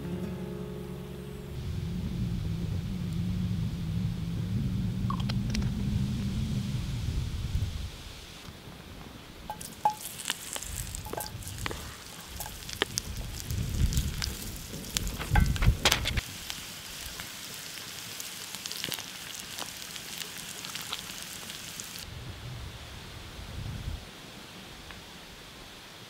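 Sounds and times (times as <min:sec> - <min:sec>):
hot oil sizzling: 0:09.4 - 0:22.1
spoon and potatoes clacking on pan: 0:09.5 - 0:12.9.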